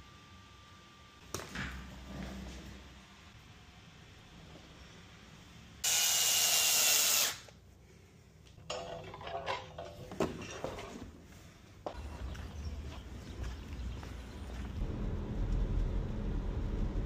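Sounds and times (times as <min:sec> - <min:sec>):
power drill driving a screw: 0:05.8 - 0:07.5
parts knocking and clattering: 0:08.6 - 0:11.2.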